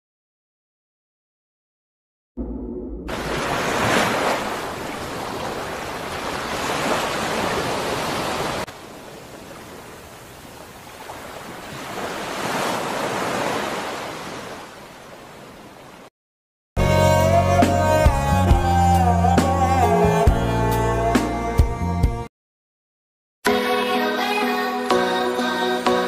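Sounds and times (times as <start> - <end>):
ocean waves washing in: 2.4 - 16.1.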